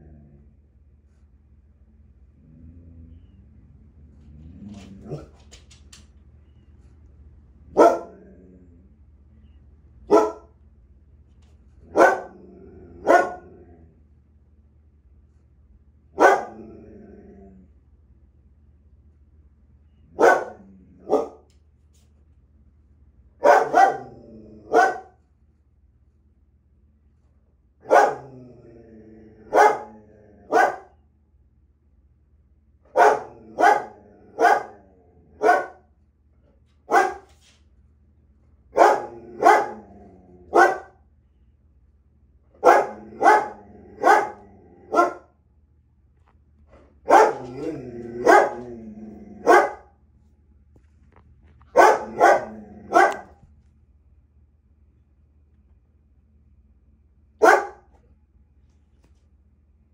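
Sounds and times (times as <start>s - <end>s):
dog growling: 0.0s - 0.6s, 2.3s - 3.4s, 4.0s - 5.5s, 8.0s - 9.0s, 11.8s - 14.0s, 16.4s - 17.8s, 23.9s - 24.8s, 28.1s - 30.6s, 39.0s - 40.6s, 42.8s - 45.2s, 46.8s - 49.7s, 51.9s - 53.4s
dog barking: 7.7s - 8.2s, 10.1s - 10.5s, 11.9s - 12.4s, 13.0s - 13.5s, 16.2s - 16.6s, 20.2s - 21.5s, 23.4s - 24.1s, 24.7s - 25.2s, 27.8s - 28.3s, 29.5s - 31.0s, 32.9s - 34.8s, 35.4s - 35.9s, 36.9s - 37.3s, 38.7s - 39.8s, 40.5s - 41.0s, 42.6s - 45.3s, 47.0s - 47.6s, 48.2s - 48.7s, 49.4s - 49.9s, 51.7s - 53.4s, 57.4s - 58.0s.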